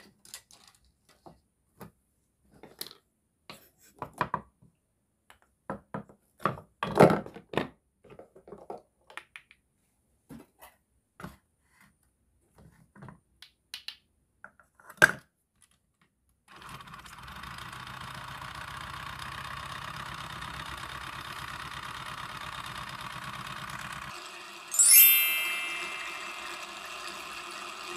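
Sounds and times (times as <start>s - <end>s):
toy mixer motor whir: 16.5s - 27.9s.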